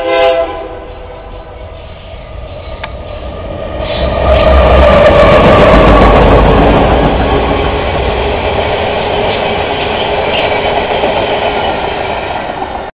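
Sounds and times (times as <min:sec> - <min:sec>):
diesel locomotive engine rumble: 0:00.0 - 0:12.9
freight cars rolling on rails: 0:00.6 - 0:12.9.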